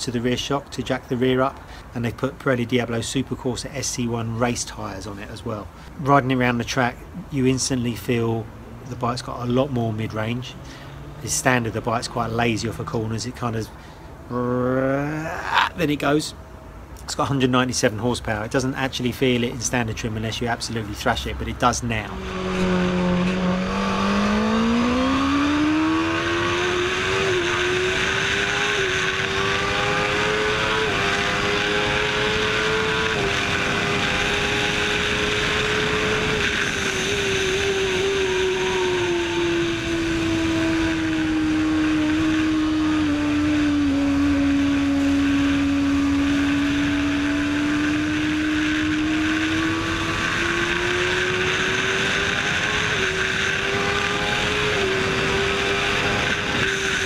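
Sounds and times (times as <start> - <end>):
motorcycle engine running hard: 22.3 - 57.0.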